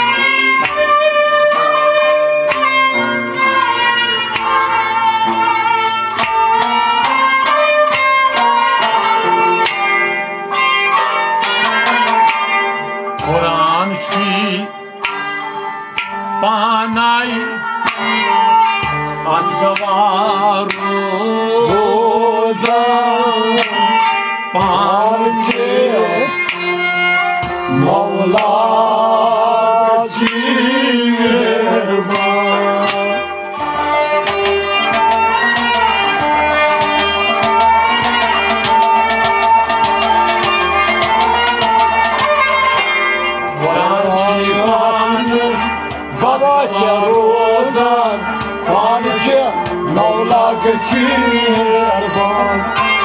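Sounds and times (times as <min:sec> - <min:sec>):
plucked rubab: 0:00.0 - 0:53.0
tabla: 0:00.0 - 0:53.0
person singing: 0:13.2 - 0:15.2, 0:16.0 - 0:26.6, 0:27.6 - 0:34.4, 0:43.5 - 0:53.0.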